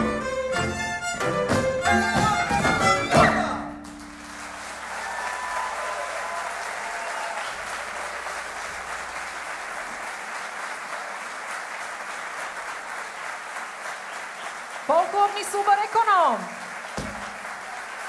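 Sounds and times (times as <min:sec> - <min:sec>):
folk band with fiddles: 0:00.0 - 0:03.8
audience applauding: 0:03.8 - 0:18.0.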